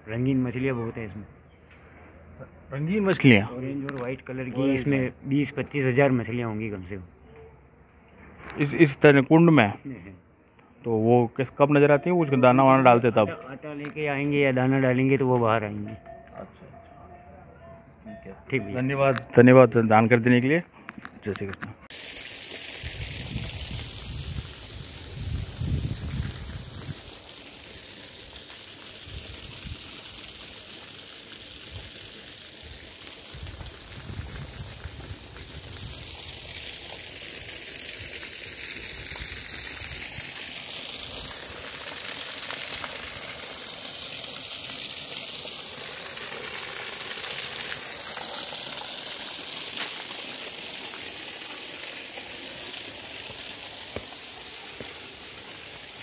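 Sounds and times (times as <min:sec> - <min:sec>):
water stream splashing onto rocks: 0:21.4 - 0:56.0.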